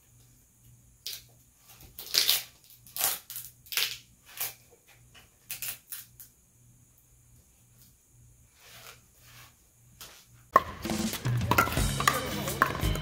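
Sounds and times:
grip tape sticky crackling rips: 5.4s - 6.3s.

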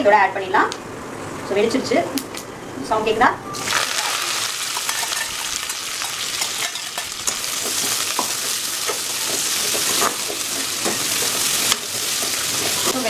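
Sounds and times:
vegetables sizzling in hot oil: 3.6s - 13.0s
spatula scraping and tapping pan: 4.8s - 13.0s.

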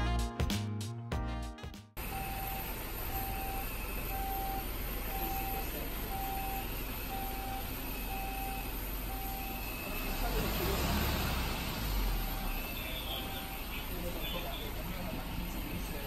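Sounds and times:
reversing alarm beeps: 2.0s - 14.8s
engine rumble: 2.0s - 16.0s.

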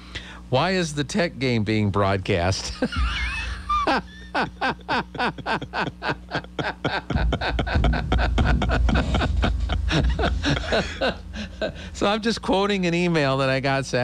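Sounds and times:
man laughing heartily: 2.7s - 12.0s.

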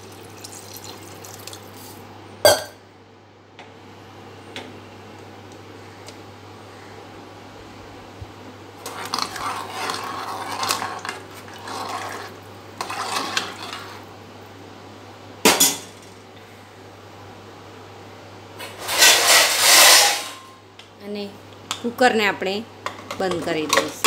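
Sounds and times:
ladle stirring and scraping curry: 8.8s - 14.0s.

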